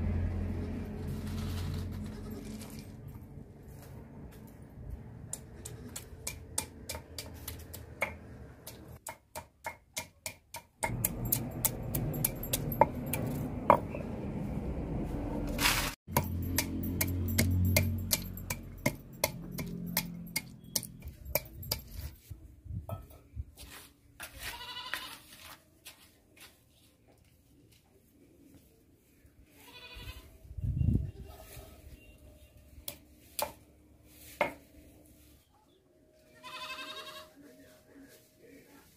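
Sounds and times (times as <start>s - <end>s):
stone pestle knocking on grinding stone: 9.0s - 14.0s, 16.1s - 21.9s
goat bleating: 24.4s - 25.3s, 29.6s - 30.3s, 36.3s - 37.4s.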